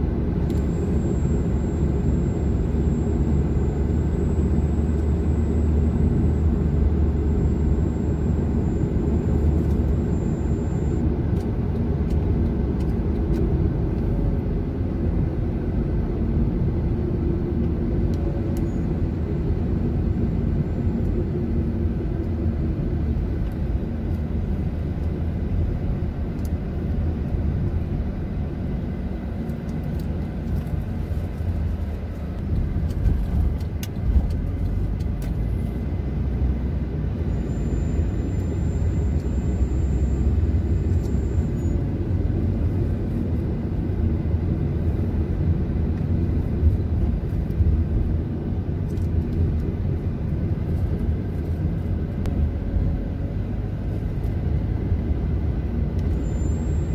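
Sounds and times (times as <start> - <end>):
car engine and tyre noise: 0.0 - 56.9
thin high whine: 0.5 - 11.0, 56.1 - 56.9.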